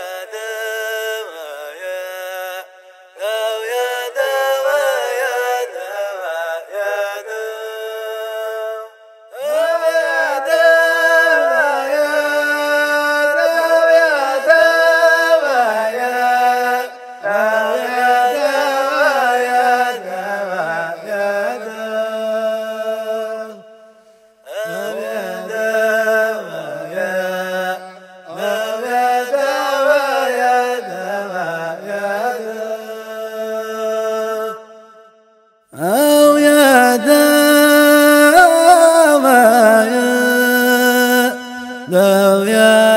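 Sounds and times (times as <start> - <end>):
man chanting: 0.0 - 23.6, 24.5 - 34.8, 35.8 - 42.9
breaths: 23.7 - 24.5.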